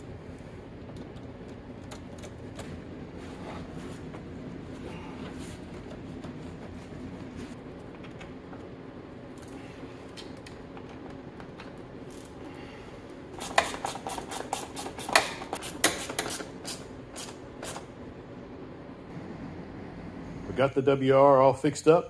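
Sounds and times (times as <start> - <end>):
steady faint hum: 0.0 - 22.0.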